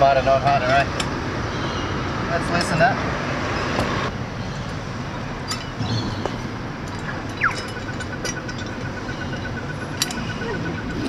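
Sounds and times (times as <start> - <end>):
street traffic noise: 0.0 - 11.0
metal clinks: 5.4 - 11.0.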